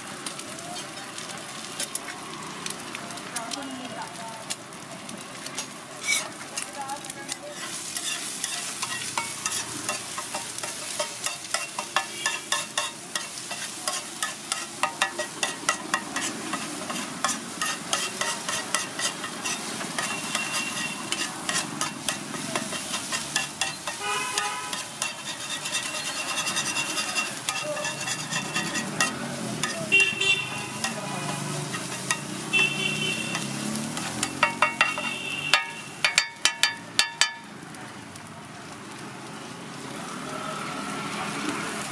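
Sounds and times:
food sizzling on griddle: 0.0 - 41.9
metal spatula scraping iron griddle: 5.6 - 37.5.

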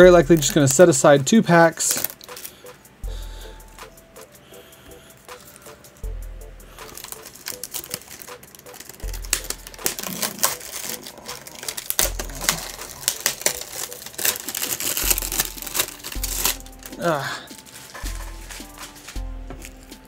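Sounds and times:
plastic shrink wrap crinkling: 0.0 - 2.7, 6.7 - 20.0.

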